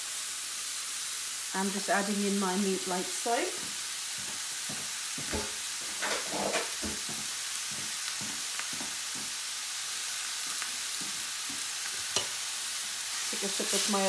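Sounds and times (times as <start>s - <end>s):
meat sizzling in a frying pan: 0.0s - 14.0s
knocks and scrapes in pan: 5.3s - 7.2s.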